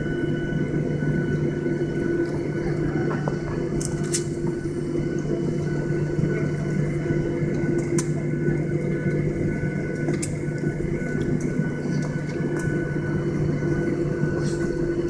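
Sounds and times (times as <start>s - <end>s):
aircraft cabin engine drone: 0.0s - 15.0s.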